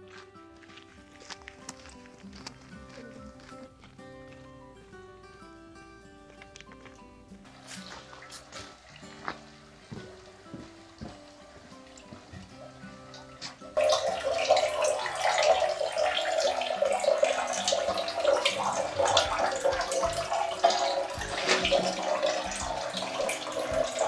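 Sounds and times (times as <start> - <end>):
water pouring into concrete basin: 7.5 - 24.0.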